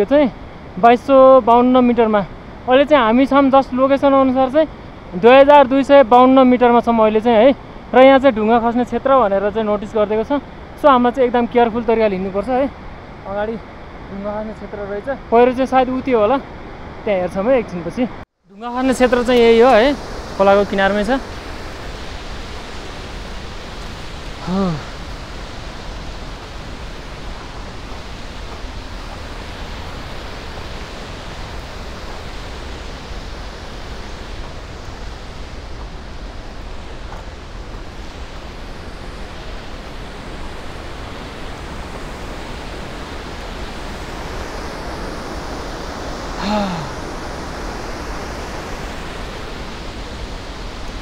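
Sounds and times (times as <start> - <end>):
river rushing: 0.0 - 51.0
person's short voiced sound: 24.4 - 24.9, 46.4 - 47.0.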